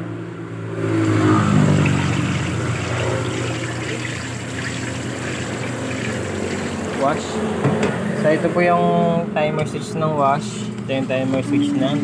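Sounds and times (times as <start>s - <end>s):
water churning and sloshing: 0.9s - 7.5s
washing machine motor humming: 1.1s - 7.7s, 10.9s - 12.0s.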